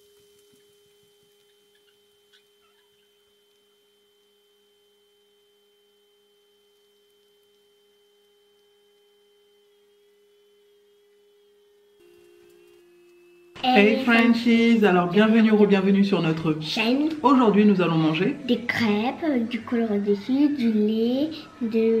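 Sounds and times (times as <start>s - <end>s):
faint ticks: 0.0s - 4.6s, 6.6s - 9.2s
faint pure-toned hum: 0.0s - 22.0s.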